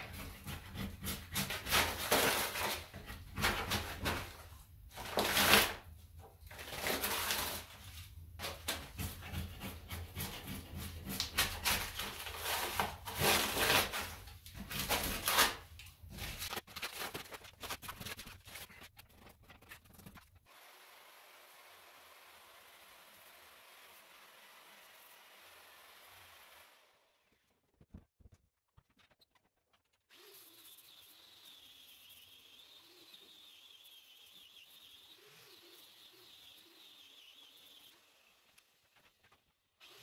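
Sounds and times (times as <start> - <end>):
wire brush scraping wall: 0.0 - 5.9, 6.5 - 20.5.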